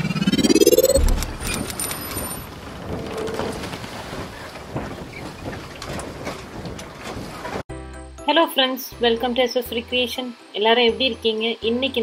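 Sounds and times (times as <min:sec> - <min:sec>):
rising swoosh: 0:00.0 - 0:01.9.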